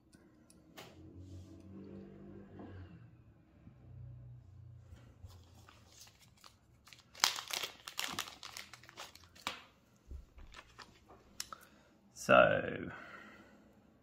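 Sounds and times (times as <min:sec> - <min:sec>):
plastic bag crinkling: 0:05.3 - 0:09.7, 0:10.4 - 0:11.6.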